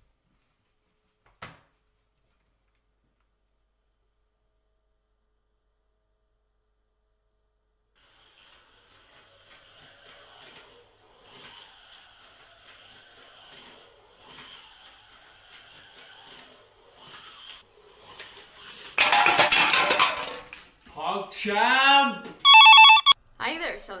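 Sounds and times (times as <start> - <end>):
slot car motor whirring: 8.3 - 19.0.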